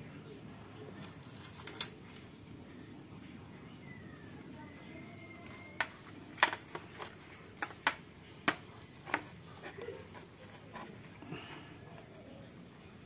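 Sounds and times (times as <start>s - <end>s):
wooden handles clicking and knocking: 5.4s - 11.5s.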